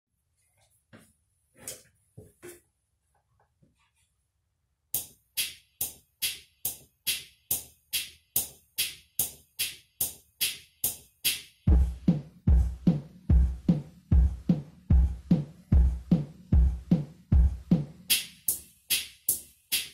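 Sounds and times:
deep bass drum: 0:11.7 - 0:17.8.

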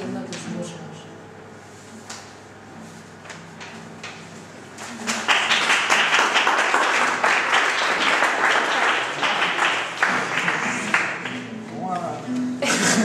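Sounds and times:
audience applause: 0:04.9 - 0:11.5
soft acoustic guitar notes: 0:10.0 - 0:13.0.

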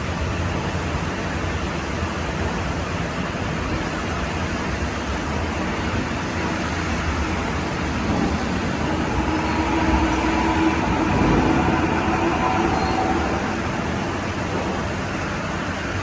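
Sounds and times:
train rumbling in tunnel: 0:00.0 - 0:16.0.

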